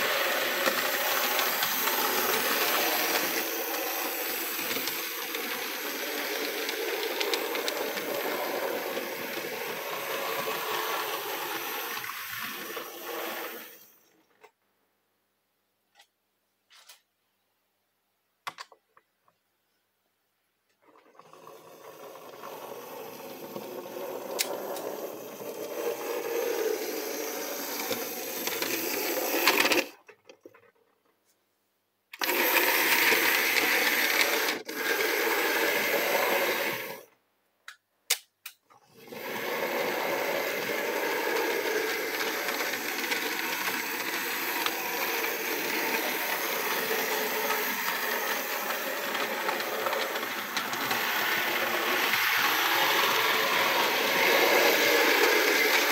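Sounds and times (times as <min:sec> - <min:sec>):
model train motor whirring: 0:00.0 - 0:13.9, 0:21.2 - 0:30.0, 0:32.2 - 0:37.1, 0:38.9 - 0:55.9.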